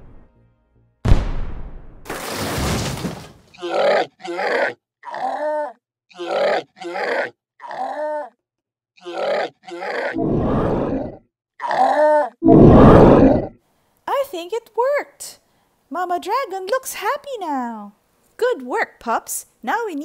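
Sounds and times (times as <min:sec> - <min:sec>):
person making squeaky grunts: 0:03.6 - 0:08.4, 0:09.0 - 0:10.2, 0:11.6 - 0:12.4
low growl: 0:09.8 - 0:11.2, 0:12.4 - 0:13.6.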